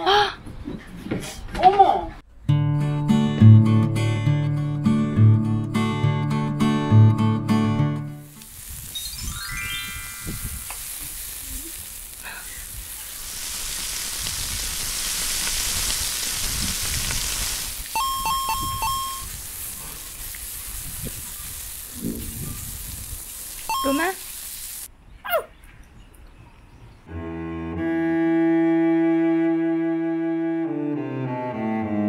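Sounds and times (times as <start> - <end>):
meat and onions sizzling on grill: 8.2 - 24.9
short rising chime: 8.9 - 10.7, 18.0 - 19.3
short electronic tones: 17.9 - 19.3, 23.7 - 24.2.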